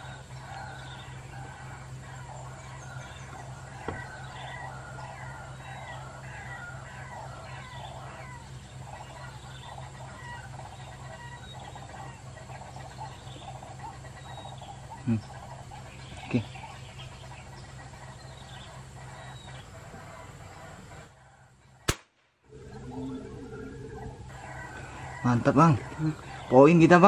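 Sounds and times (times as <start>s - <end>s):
steady low hum: 0.0s - 27.0s
waterhen croaking calls from speaker: 22.5s - 27.0s.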